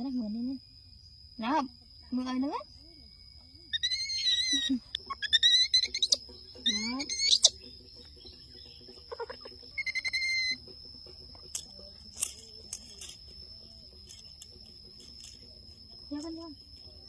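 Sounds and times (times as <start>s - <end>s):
high-pitched animal calls: 3.7s - 7.8s, 8.9s - 10.7s.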